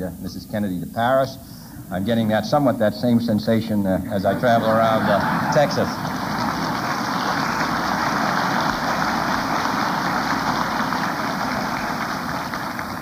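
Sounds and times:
crowd applauding: 4.3s - 13.0s.

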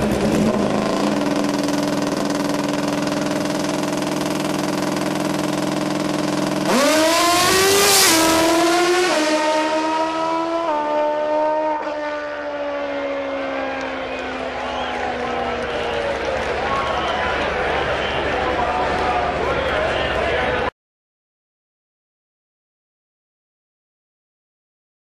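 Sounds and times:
motorcycle accelerating through gears: 0.0s - 15.3s
motorcycle engine running: 0.0s - 16.9s.

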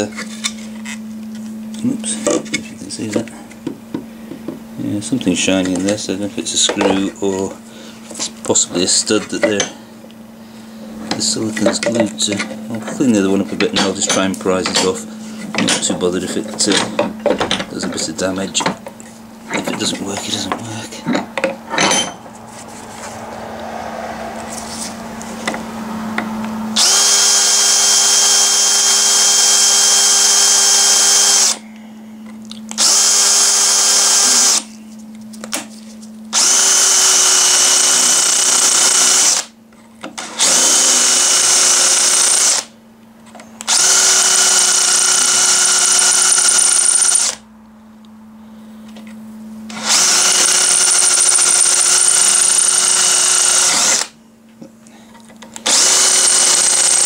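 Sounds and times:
power drill whining: 26.7s - 31.6s, 32.7s - 34.7s, 36.3s - 39.5s, 40.2s - 42.7s, 43.6s - 47.4s, 49.7s - 54.2s, 55.6s - 57.0s.

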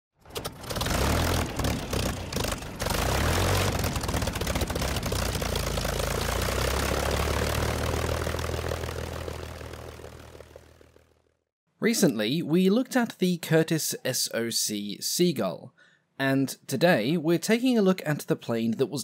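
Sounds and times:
propeller aircraft engine running: 0.2s - 11.5s.

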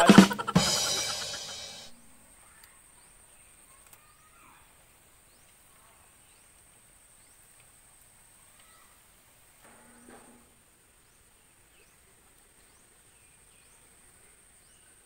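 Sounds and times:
faint bird chirps: 0.0s - 6.6s.

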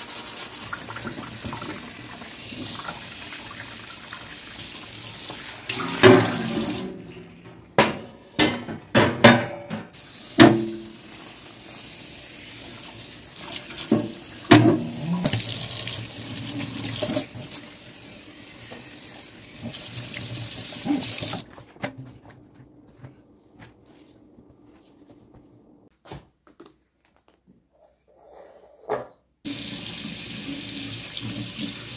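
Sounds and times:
items clattering against sink: 5.7s - 10.8s.

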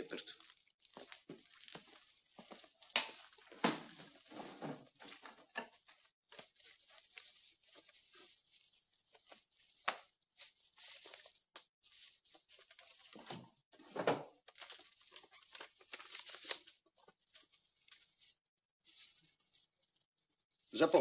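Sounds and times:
paper rustling: 0.3s - 21.0s.

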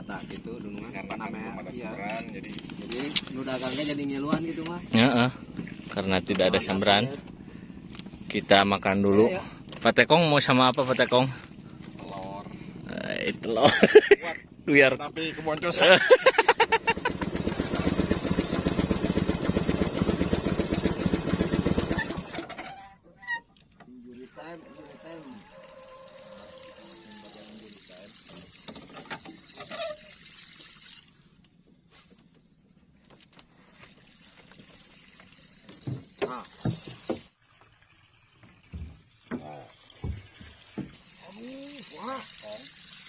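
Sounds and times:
small boat engine running: 0.0s - 30.2s, 31.2s - 37.4s
water splashing against wooden boat: 27.9s - 32.4s, 33.0s - 43.0s.

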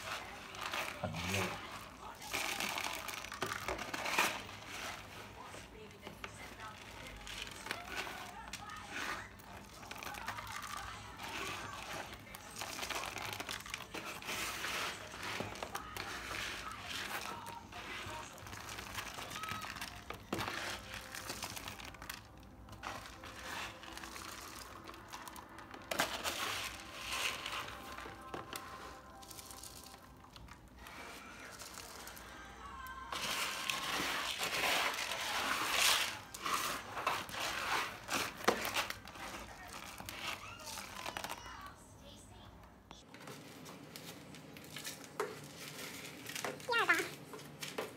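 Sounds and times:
nylon fabric crinkling and rustling: 0.0s - 41.7s, 43.0s - 47.9s.

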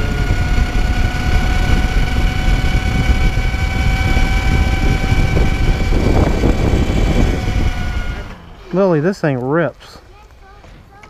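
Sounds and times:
wind rumble on microphone: 0.0s - 8.4s
electric motor whine: 0.0s - 8.7s.

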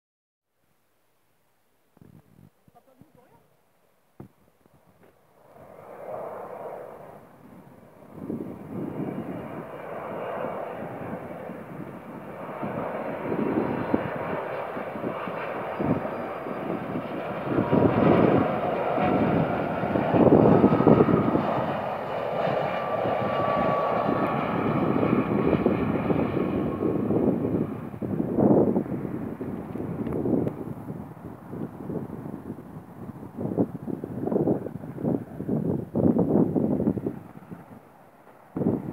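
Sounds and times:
jet engines rushing: 4.7s - 38.9s
faint high whine: 11.8s - 19.4s.

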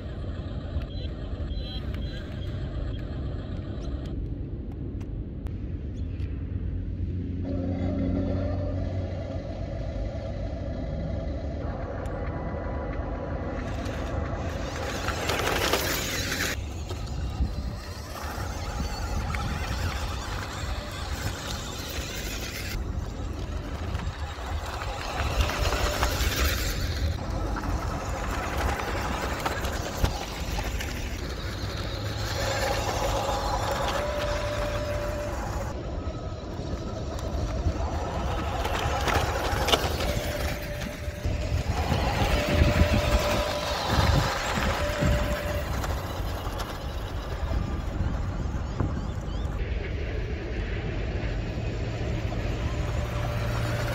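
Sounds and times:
small motor: 0.0s - 4.3s, 7.4s - 49.7s, 51.5s - 53.9s
heavy low rumble: 3.2s - 53.9s
tyres crunching on gravel: 13.6s - 47.6s.

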